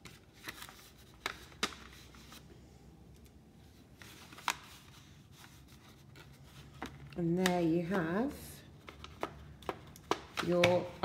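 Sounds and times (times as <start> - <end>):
paper sheets rustling: 0.0 - 2.4, 3.6 - 7.1.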